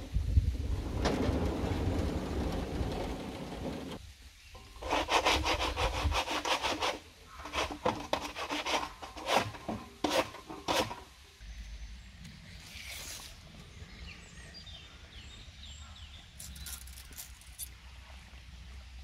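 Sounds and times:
steady low rumbling: 0.0s - 4.3s
brush scrubbing bark: 4.7s - 11.1s.

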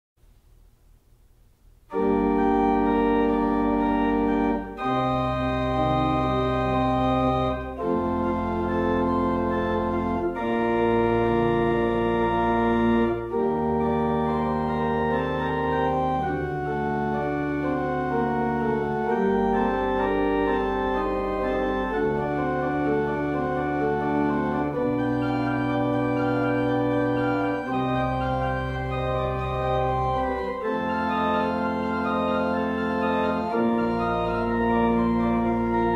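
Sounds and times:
organ chords: 1.8s - 35.9s.

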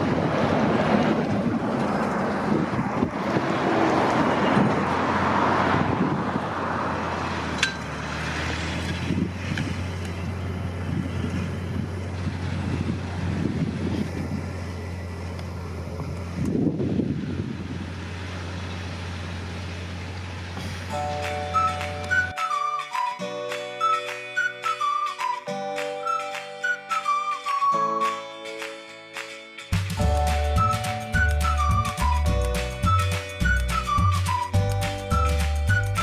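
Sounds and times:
tractor diesel engine under load: 0.0s - 22.4s.

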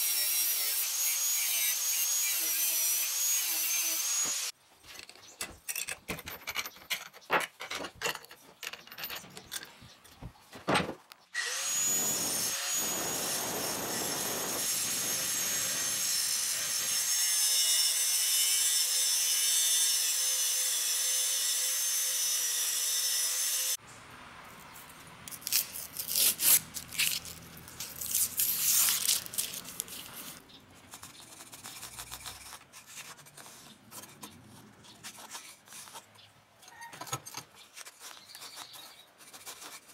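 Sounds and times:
angle grinder cutting steel: 0.0s - 4.5s, 11.4s - 23.8s
scrapes and knocks of handling steel: 4.8s - 11.1s.

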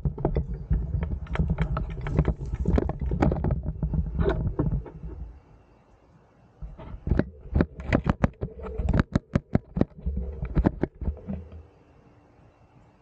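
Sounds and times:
handling noise rumbles: 0.0s - 5.4s
camera tapping clicks and knocks: 6.8s - 11.6s.

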